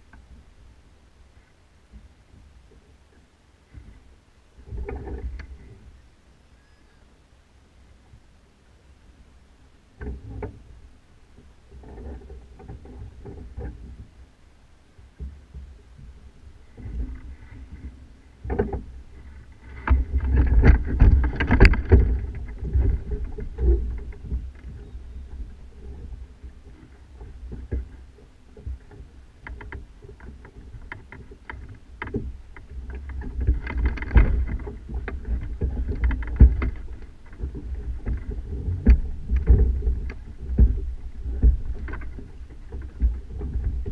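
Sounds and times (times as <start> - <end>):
wind rumbling over camera: 0.0 - 43.9
knocks and clicks from rig: 19.7 - 24.9, 28.6 - 43.9.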